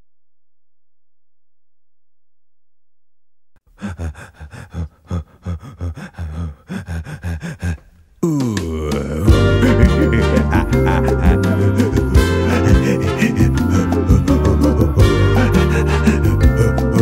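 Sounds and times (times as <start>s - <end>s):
person panting: 3.6s - 17.0s.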